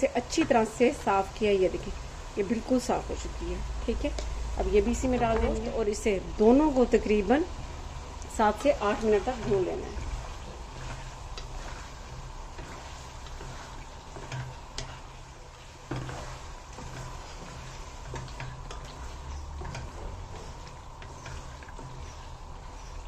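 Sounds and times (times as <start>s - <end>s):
frying hiss: 0.0s - 23.0s
wooden spoon scraping metal pan: 8.4s - 23.0s.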